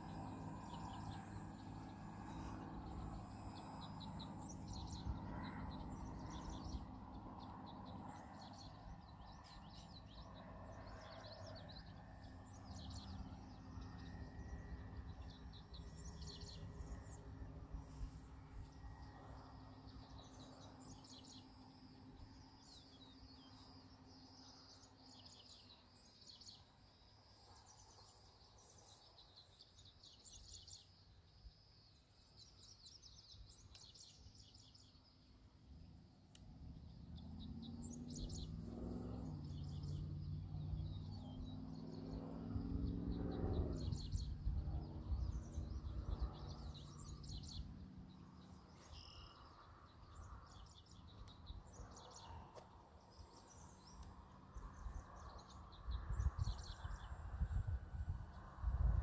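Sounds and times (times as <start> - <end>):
model plane flying by: 0.0 - 21.4, 37.2 - 49.4
birds chirping: 0.0 - 26.7, 36.6 - 57.6.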